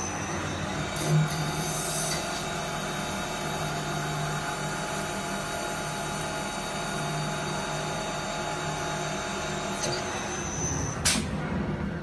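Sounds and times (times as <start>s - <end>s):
lathe motor humming: 0.0s - 10.4s
lathe cutting hiss: 1.0s - 2.6s.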